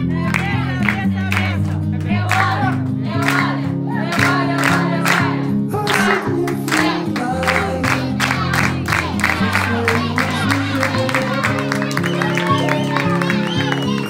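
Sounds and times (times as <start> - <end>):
person singing worship song: 2.2 - 13.4.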